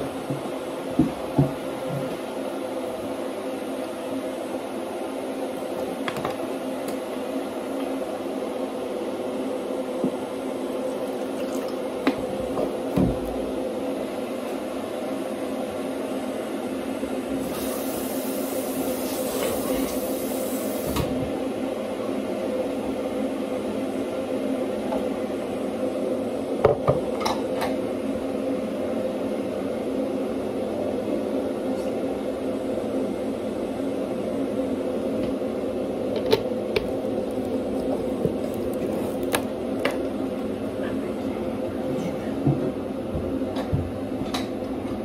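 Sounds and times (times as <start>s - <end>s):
kitchen appliance humming: 0.0s - 15.7s, 34.0s - 42.3s.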